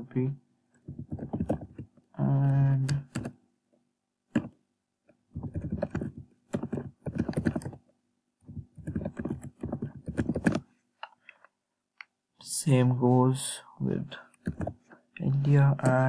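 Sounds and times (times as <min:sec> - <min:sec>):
computer keyboard typing: 0:00.9 - 0:01.9, 0:02.9 - 0:03.3, 0:05.4 - 0:07.8, 0:08.5 - 0:10.6, 0:14.4 - 0:14.9.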